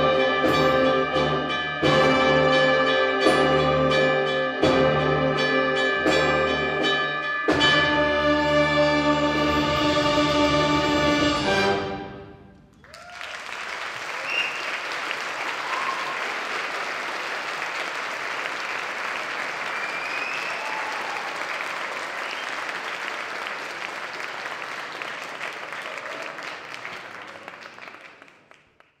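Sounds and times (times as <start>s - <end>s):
audience applauding: 12.8s - 29.0s.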